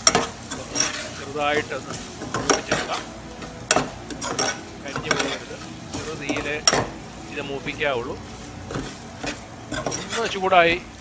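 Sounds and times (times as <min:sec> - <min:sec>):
ladle scraping metal pot: 0:00.0 - 0:07.0, 0:07.6 - 0:10.5
food sizzling in oil: 0:00.0 - 0:11.0
ladle clinking against pot: 0:03.7 - 0:07.0.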